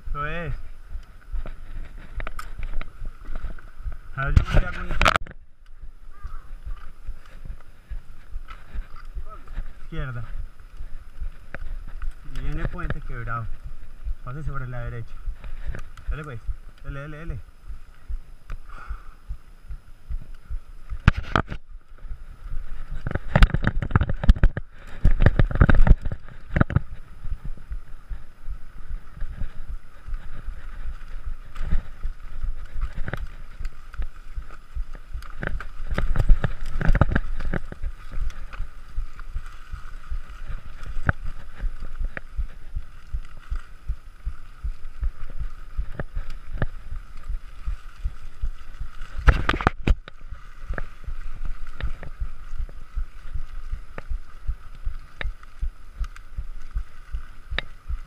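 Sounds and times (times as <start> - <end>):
bicycle rattling and thumping: 20.9 - 58.0.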